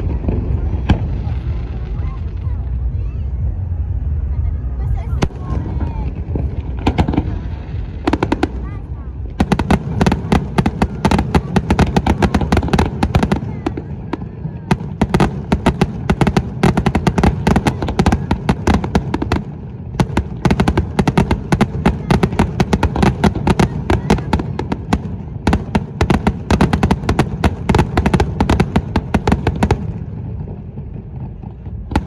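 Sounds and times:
low rumble: 0:00.0 - 0:21.6
fireworks bursts and crackling: 0:00.0 - 0:32.0.

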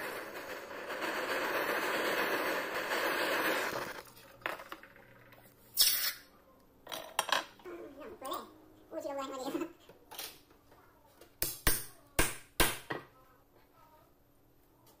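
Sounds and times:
torch flame blowing: 0:00.0 - 0:04.0.

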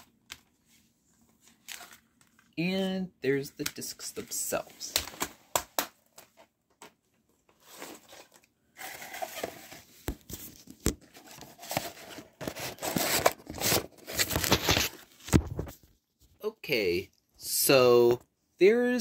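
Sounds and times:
plastic case rustling and scraping: 0:07.4 - 0:15.9.

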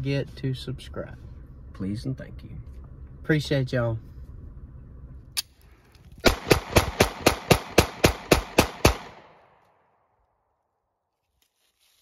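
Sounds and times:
pistol shots: 0:06.2 - 0:09.6.

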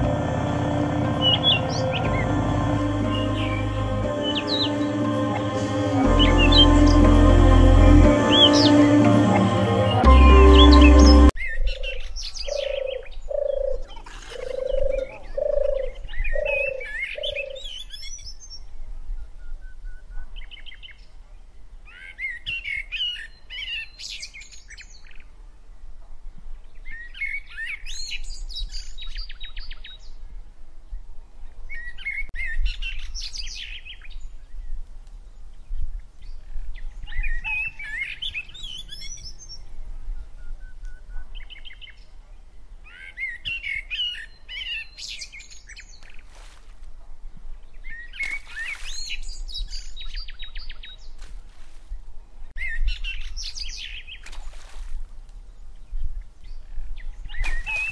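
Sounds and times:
small birds chirping: 0:47.7 - 0:51.9, 0:55.8 - 0:57.9.

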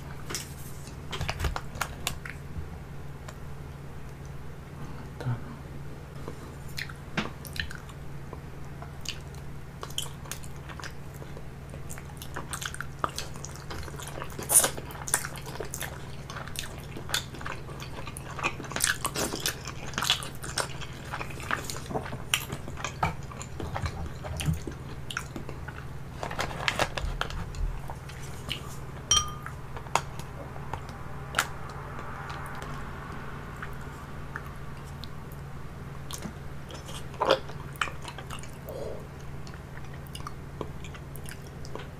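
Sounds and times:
steady low hum: 0:00.0 - 0:41.9.

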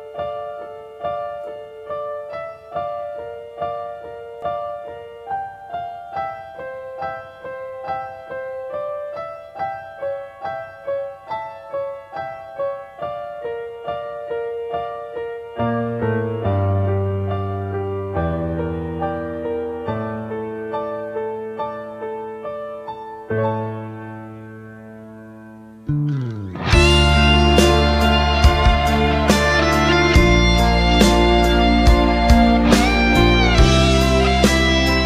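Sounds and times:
piano melody: 0:00.0 - 0:35.0
low piano bass chords: 0:15.4 - 0:35.0.

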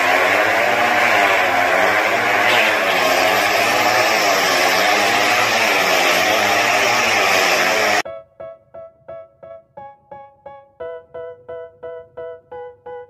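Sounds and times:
motorcycle engines revving: 0:00.0 - 0:08.0.

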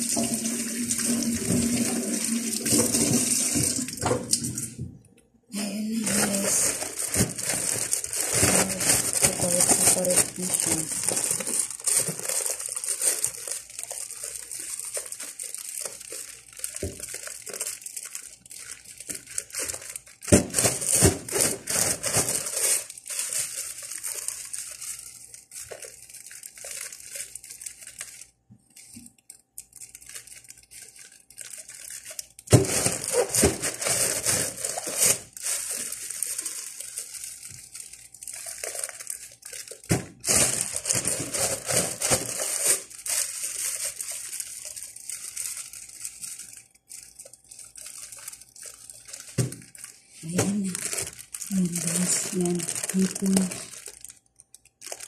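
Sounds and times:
plastic bags crinkling: 0:00.0 - 0:04.8, 0:05.6 - 0:55.0.

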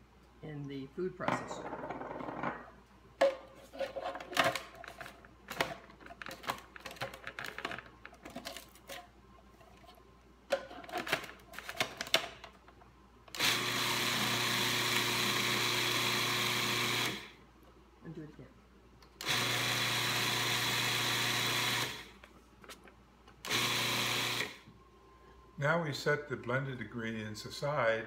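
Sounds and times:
food processor motor running: 0:13.4 - 0:17.3, 0:19.2 - 0:22.1, 0:23.5 - 0:24.6.

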